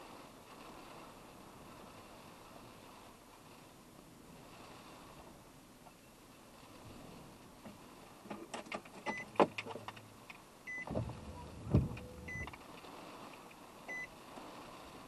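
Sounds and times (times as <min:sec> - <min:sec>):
clicks and knocks in car: 0:07.7 - 0:10.1, 0:10.8 - 0:12.6.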